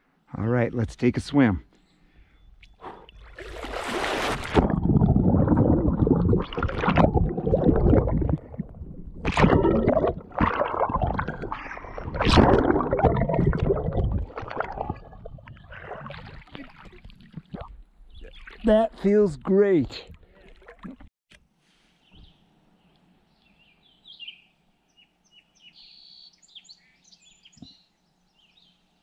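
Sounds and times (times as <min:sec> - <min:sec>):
water sloshing: 0:02.7 - 0:18.9, 0:20.0 - 0:21.1
underwater churning and bubbling: 0:02.8 - 0:18.6, 0:20.1 - 0:21.1
person splashing into water: 0:03.2 - 0:18.7.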